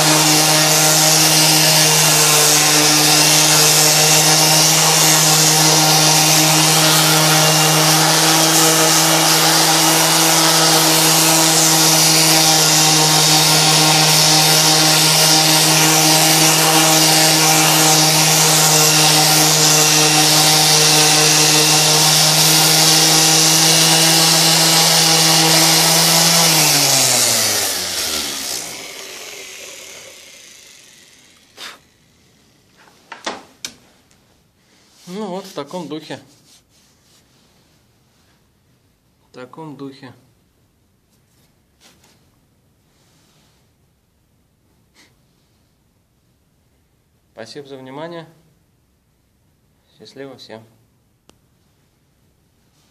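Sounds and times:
orbital sander sanding wood: 0.0s - 33.0s.

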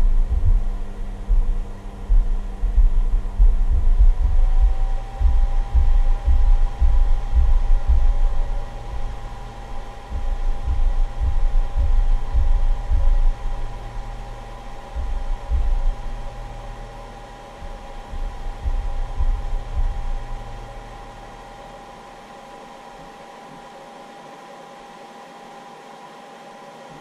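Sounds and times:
low rumbling thumping: 0.0s - 21.5s
cooling fan hum and whine: 0.0s - 27.0s.

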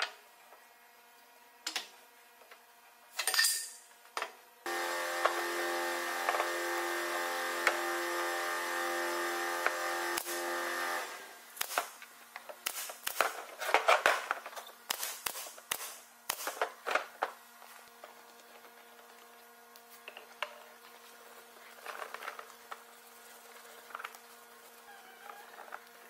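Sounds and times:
table saw motor humming: 4.7s - 11.5s
nail gun snapping: 11.6s - 12.0s, 12.6s - 13.4s, 14.9s - 16.6s.

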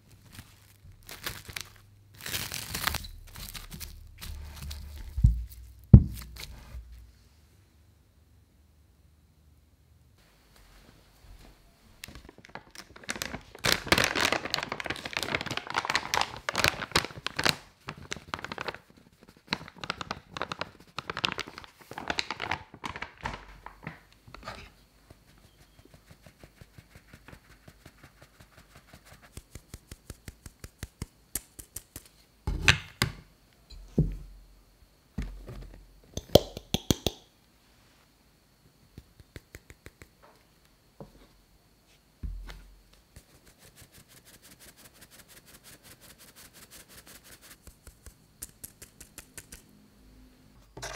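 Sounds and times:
paper bag crinkling: 0.0s - 7.0s, 12.0s - 24.1s.

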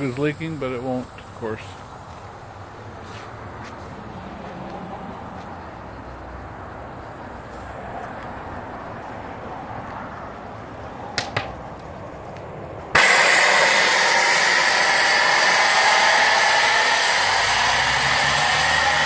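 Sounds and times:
safety valve steam hiss: 13.0s - 19.0s.

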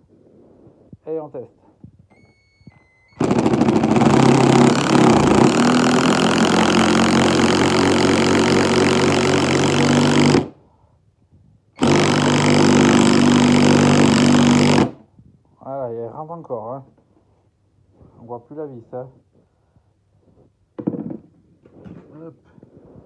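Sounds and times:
impact driver hammering screw into log: 3.2s - 10.6s, 11.8s - 15.0s.

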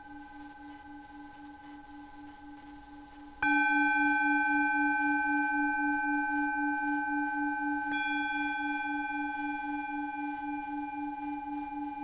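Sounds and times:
bell-like ringing tones: 3.4s - 12.0s.

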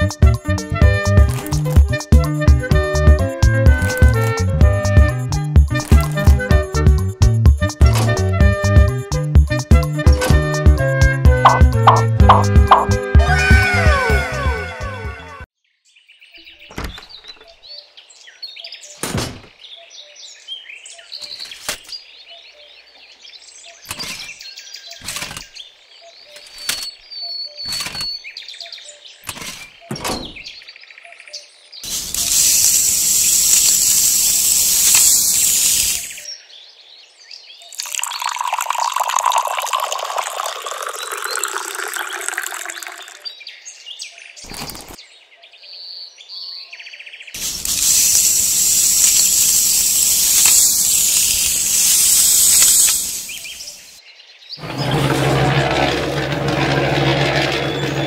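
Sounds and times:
birds chirping: 15.9s - 32.1s, 35.1s - 56.5s
small parts clicking: 31.9s - 36.2s, 47.4s - 53.5s.

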